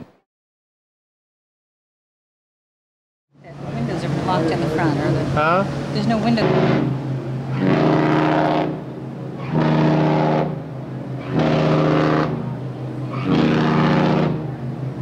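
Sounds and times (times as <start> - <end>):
ship horn short blasts: 3.4 - 15.0.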